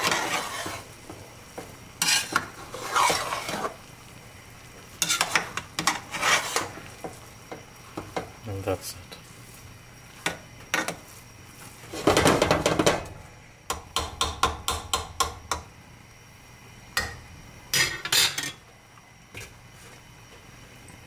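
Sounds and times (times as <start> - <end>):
metal utensils clattering on pot: 17.7 - 18.6.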